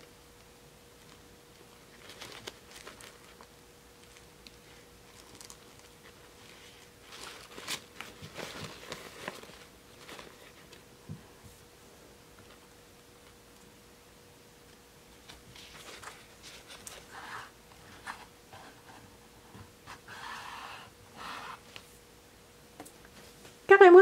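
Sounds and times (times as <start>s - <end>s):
faint steady hum: 0.0s - 24.0s
soft rustling of doll hair: 15.0s - 20.1s.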